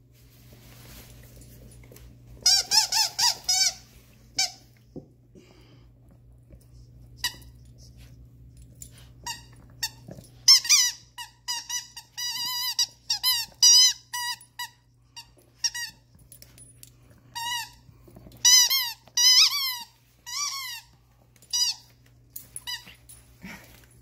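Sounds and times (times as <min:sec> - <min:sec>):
squeaky toy squeaks: 0:02.4 - 0:03.8, 0:09.2 - 0:16.0, 0:18.4 - 0:20.9.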